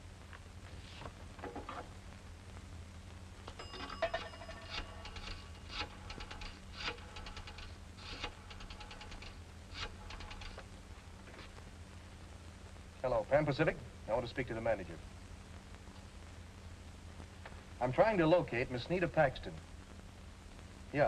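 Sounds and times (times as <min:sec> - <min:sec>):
coin telephone bell ring: 0:03.5 - 0:06.5
rotary dial clicking: 0:04.7 - 0:10.6.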